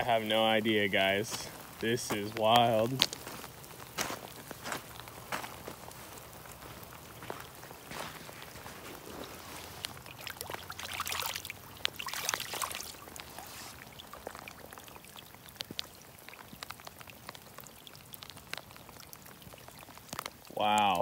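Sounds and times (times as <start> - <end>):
water drips: 0.0 - 21.0
water sloshing and pouring: 3.0 - 20.5.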